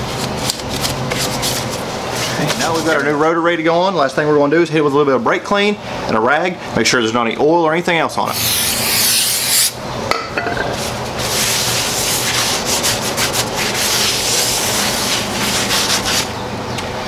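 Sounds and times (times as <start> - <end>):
towel rubbing on metal rotor: 8.3 - 9.8, 11.2 - 16.4.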